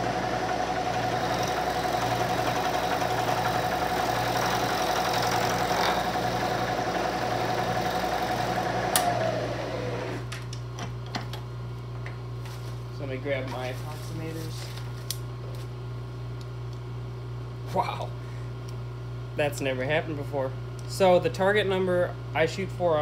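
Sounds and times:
spindle winding down: 0:00.0 - 0:10.2
milling machine whine: 0:00.0 - 0:10.3.

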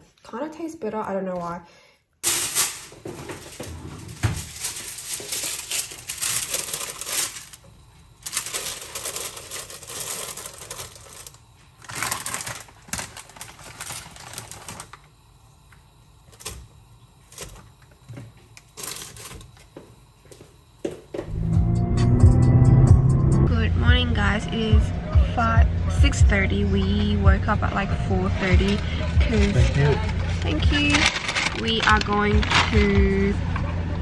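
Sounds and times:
plastic packaging crinkling: 0:02.2 - 0:15.1, 0:18.6 - 0:19.6, 0:29.4 - 0:33.3
car engine rumble: 0:21.3 - 0:34.0.

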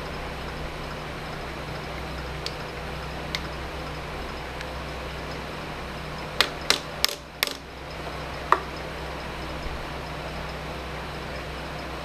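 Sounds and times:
hammer tapping metal workpiece: 0:06.4 - 0:07.6.

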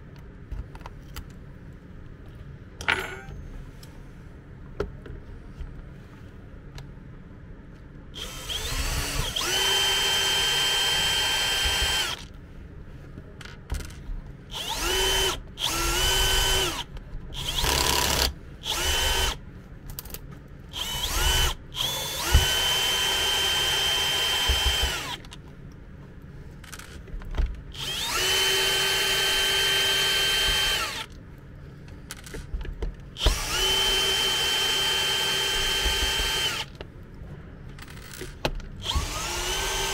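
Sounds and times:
cordless drill whining: 0:08.2 - 0:12.3, 0:14.5 - 0:19.4, 0:20.8 - 0:25.2, 0:27.8 - 0:31.1, 0:33.2 - 0:36.7, 0:38.8 - 0:39.9.

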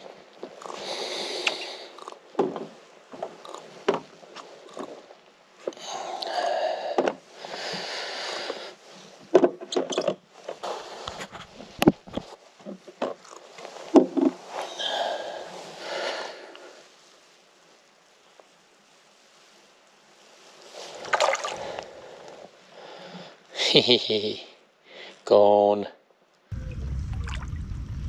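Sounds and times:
rustling and scraping on deck: 0:00.0 - 0:05.8, 0:07.0 - 0:19.7.

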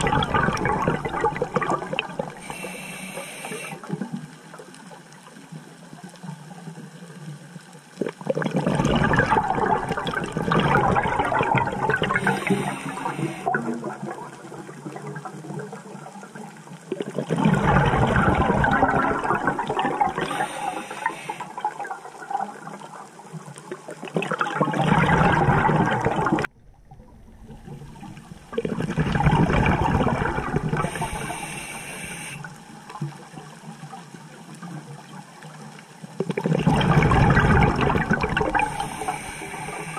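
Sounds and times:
bubbling regulator exhalations: 0:00.0 - 0:04.1, 0:08.1 - 0:14.3, 0:16.9 - 0:22.4, 0:24.1 - 0:32.5, 0:36.2 - 0:39.9
hissing regulator inhalations: 0:02.4 - 0:03.9, 0:12.0 - 0:13.6, 0:20.2 - 0:21.6, 0:30.8 - 0:32.5, 0:38.5 - 0:39.9.

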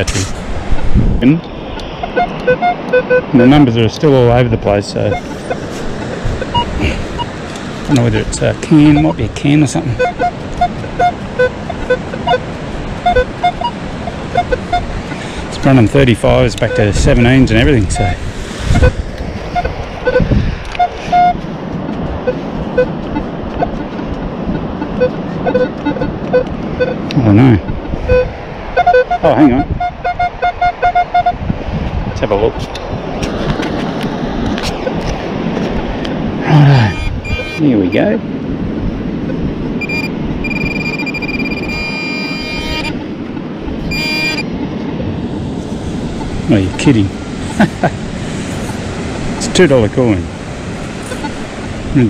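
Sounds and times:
metal detector beeping: 0:01.8 - 0:03.7, 0:05.0 - 0:15.0, 0:15.6 - 0:21.4, 0:22.2 - 0:27.3, 0:28.1 - 0:31.4, 0:36.5 - 0:38.1, 0:39.2 - 0:44.6, 0:46.2 - 0:47.6, 0:51.0 - 0:51.4.

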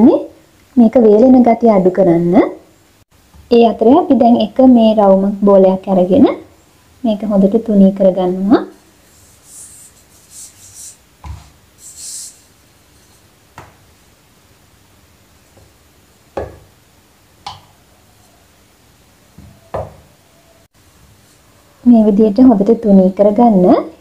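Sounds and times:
rolling pin brushing dough: 0:08.7 - 0:13.7
rolling pin knocking on board: 0:16.4 - 0:16.7, 0:19.4 - 0:20.0.

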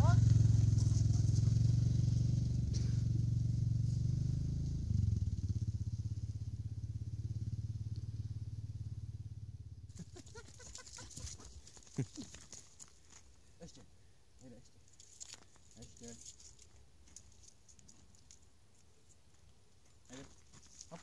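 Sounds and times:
motorcycle engine pulling away: 0:00.0 - 0:12.5
faint clicks and rustles: 0:09.9 - 0:13.5, 0:14.8 - 0:21.0.

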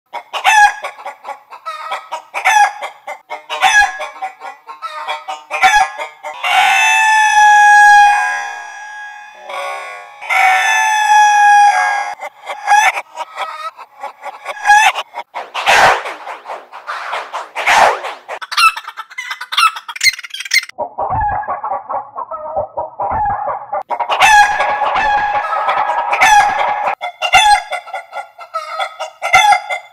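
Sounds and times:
long held chicken call: 0:00.1 - 0:15.0, 0:23.2 - 0:29.9
chicken clucking squawks: 0:00.1 - 0:29.9
altered rooster crows: 0:06.4 - 0:12.2.

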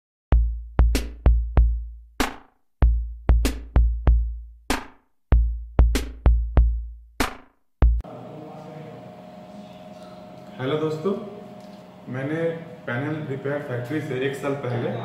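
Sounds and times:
deep bass drum booms: 0:02.8 - 0:04.4, 0:05.4 - 0:06.9
sharp snare-like hits: 0:04.7 - 0:05.0.

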